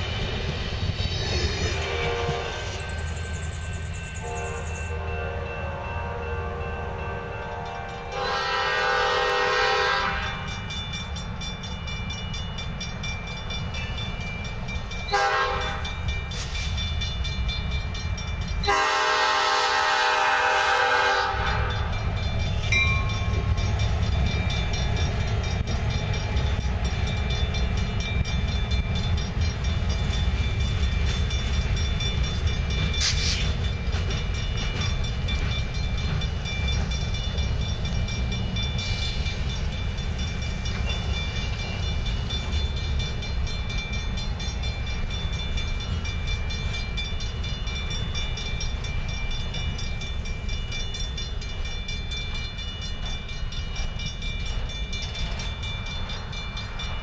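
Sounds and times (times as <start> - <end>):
crossing bells ringing: 0.0 - 57.0
train rumbling past on rails: 0.0 - 57.0
locomotive horn blasts: 1.8 - 2.8, 4.2 - 10.5, 15.1 - 15.9, 18.7 - 21.9.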